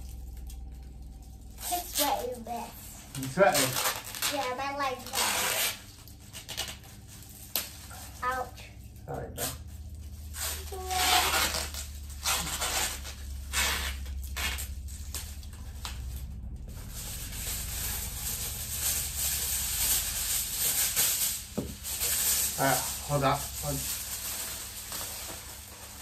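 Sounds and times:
aluminium foil crinkling: 0.0s - 26.0s.

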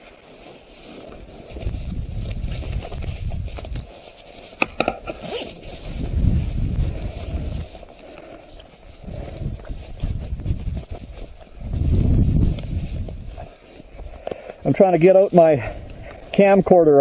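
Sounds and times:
microphone handling rumble: 1.5s - 3.9s, 4.7s - 7.9s, 9.0s - 14.6s.

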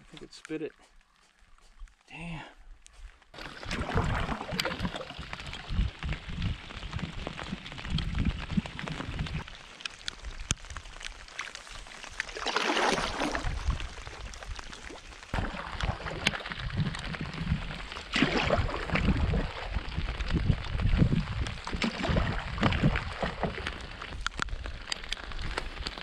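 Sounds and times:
light rain ticking on water: 2.8s - 26.0s
paddle strokes swishing through water: 12.2s - 20.2s.

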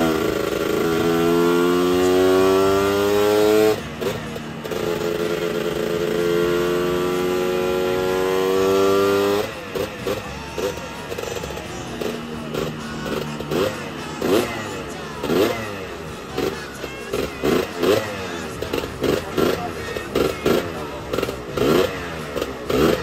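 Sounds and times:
two-stroke scooter engine revving: 0.0s - 23.0s.

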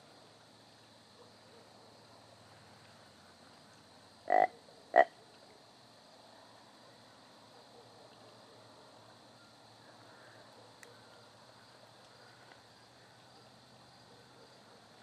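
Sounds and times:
croaky deer call: 4.3s - 5.2s.

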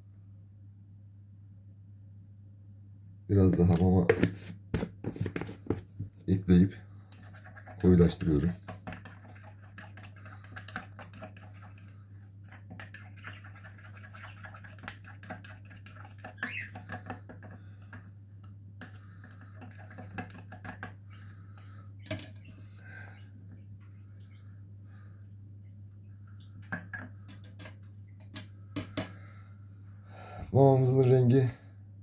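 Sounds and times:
spoon scraping plastic cup: 4.0s - 5.8s, 7.1s - 17.6s, 18.8s - 21.4s, 26.8s - 29.1s
steady low hum: 16.7s - 32.0s.

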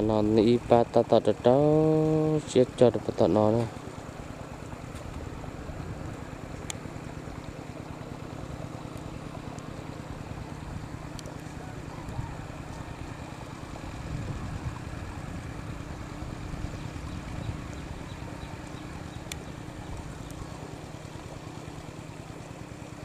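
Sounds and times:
faint steady hum: 0.0s - 23.0s
wind buffeting microphone: 10.3s - 20.6s.

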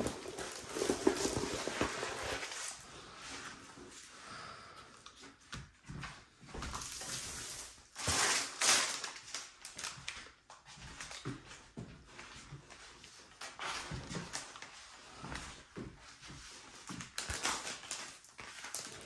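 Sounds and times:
plastic film crinkling: 0.0s - 3.2s, 6.7s - 10.4s, 16.9s - 19.0s.

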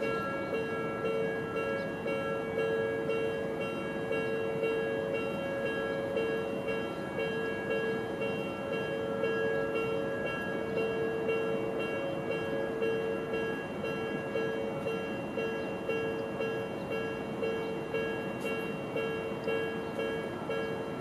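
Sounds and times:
train rolling rumble: 0.0s - 21.0s.

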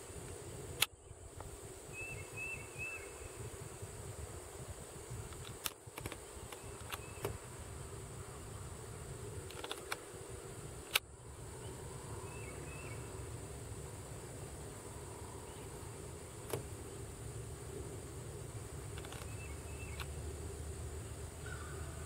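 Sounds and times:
sharp clicks: 5.3s - 7.4s, 9.4s - 10.0s, 10.8s - 11.1s, 16.4s - 16.7s, 18.9s - 20.2s.

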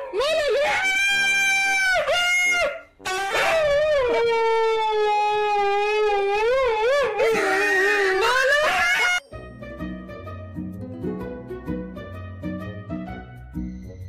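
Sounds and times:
husky howling: 0.0s - 9.2s.

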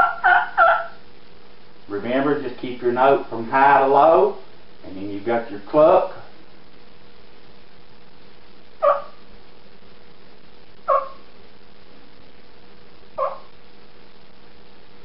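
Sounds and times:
turkey call clucks: 0.0s - 1.0s, 8.8s - 9.2s, 10.8s - 11.3s, 13.2s - 13.5s.

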